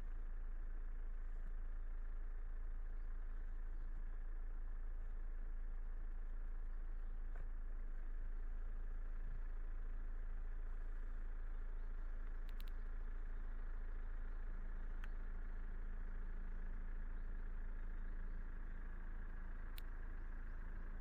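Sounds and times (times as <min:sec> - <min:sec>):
car engine and road noise: 0:00.0 - 0:21.0
low steady hum: 0:00.0 - 0:21.0
faint ticks: 0:07.2 - 0:07.8, 0:12.2 - 0:13.6, 0:14.8 - 0:15.4, 0:19.6 - 0:21.0.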